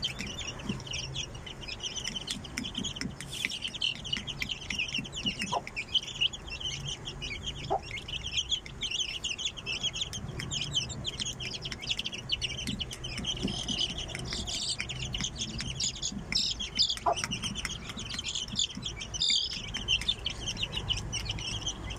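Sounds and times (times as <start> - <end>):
chicks peeping: 0.0 - 21.9
hen clucking: 0.0 - 21.9.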